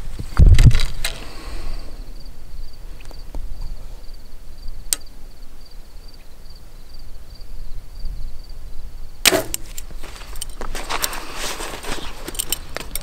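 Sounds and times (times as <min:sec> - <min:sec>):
faint insect chirp: 0:00.0 - 0:13.0
small clicks: 0:12.2 - 0:13.0.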